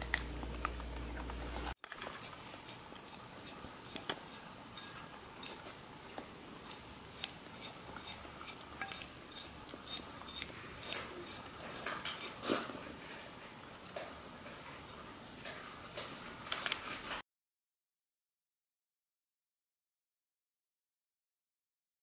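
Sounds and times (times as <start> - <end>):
tongue and teeth clicking on plate: 2.0 - 12.4
dog licking: 2.2 - 9.1.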